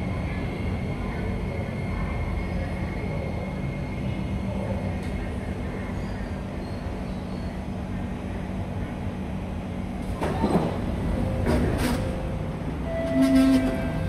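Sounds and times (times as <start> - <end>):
train equipment low rumble: 0.0 - 14.0
brief tone: 12.8 - 14.0.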